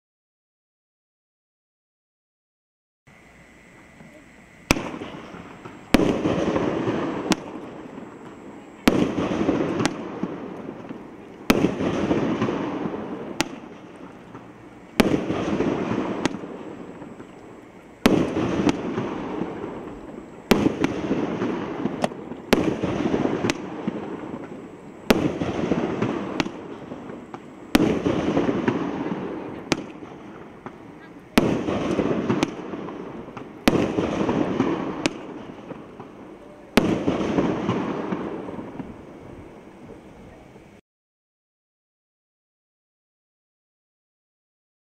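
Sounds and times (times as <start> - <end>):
noisy crackling tail: 3.1 - 40.8
lighter firework reports: 3.2 - 40.8
firework bangs: 4.0 - 40.0.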